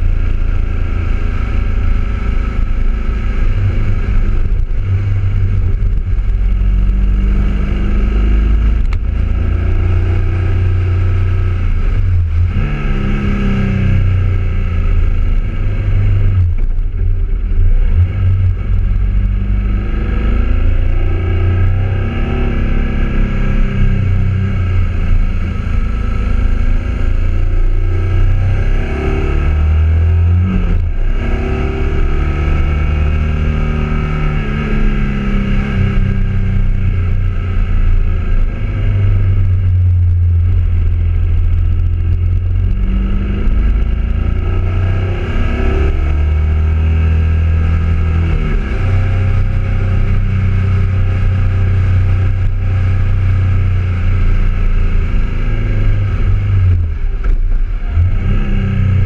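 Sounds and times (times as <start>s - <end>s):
motorcycle engine revving: 0.0s - 59.0s
wind and road rumble: 0.0s - 59.0s.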